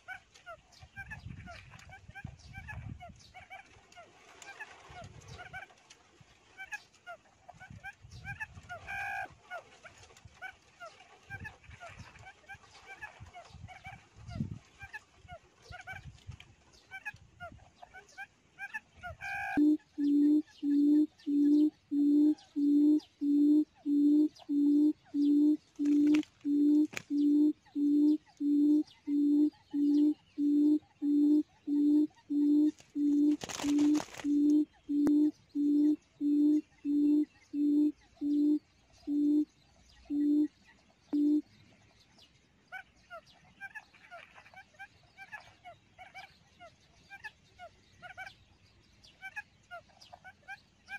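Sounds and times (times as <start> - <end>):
rustle: 0.0 - 19.4, 25.6 - 27.2, 32.7 - 34.8
quail call from speaker: 7.6 - 9.6, 16.9 - 30.2
faint chirps: 19.2 - 41.8.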